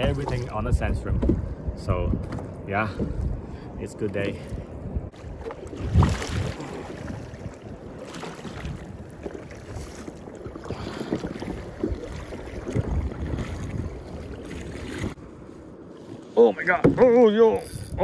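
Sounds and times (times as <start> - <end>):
wind on microphone: 0.0 - 16.3
paddle splashing in water: 5.1 - 15.2.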